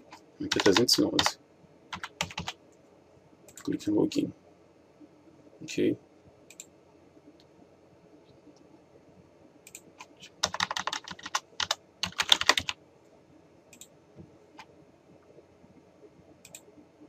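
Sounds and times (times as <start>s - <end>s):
typing on a computer keyboard: 0.1s - 2.6s, 9.7s - 12.8s.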